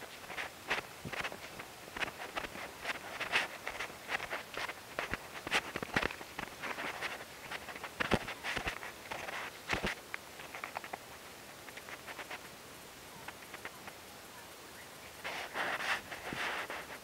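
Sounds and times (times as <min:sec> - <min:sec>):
footsteps on dry grass: 0:00.0 - 0:10.0.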